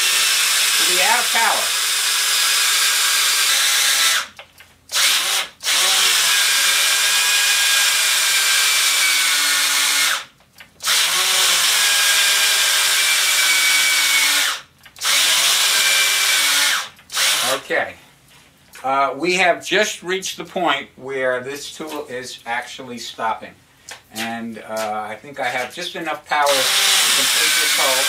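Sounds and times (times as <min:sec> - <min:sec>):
cordless drill whining: 0:00.0 - 0:17.6, 0:26.5 - 0:28.0.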